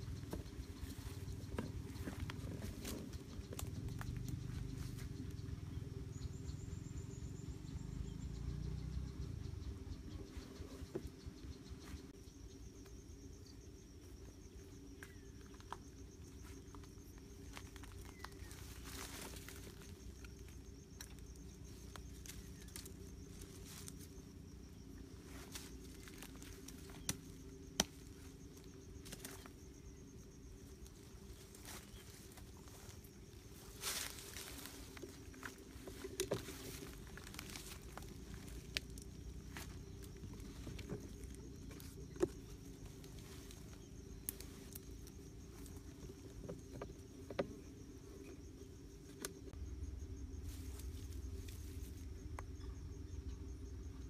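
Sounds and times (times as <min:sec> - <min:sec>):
faint high insect trill: 0:00.0 - 0:54.0
hands rustling in dry leaves: 0:31.4 - 0:41.9
low rumble: 0:47.5 - 0:54.0.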